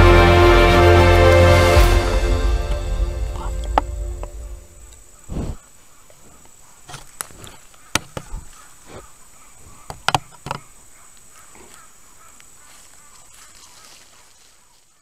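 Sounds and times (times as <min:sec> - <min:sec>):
high-pitched whine: 0:00.0 - 0:05.5.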